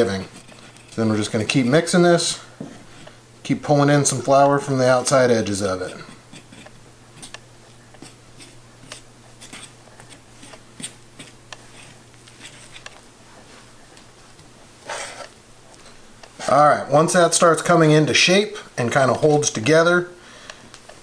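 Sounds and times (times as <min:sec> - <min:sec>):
low steady hum: 0:00.0 - 0:21.0
fork clicking and scraping counter: 0:05.8 - 0:13.0.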